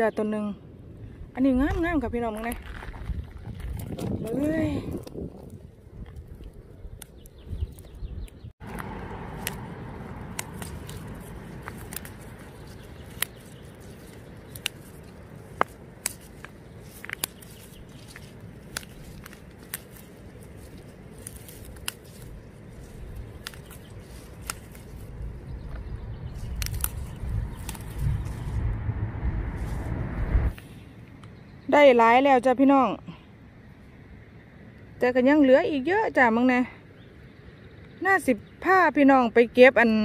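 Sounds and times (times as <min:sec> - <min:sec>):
vegetable stems snapping: 0:06.0 - 0:28.6
low steady rumble: 0:08.4 - 0:31.6.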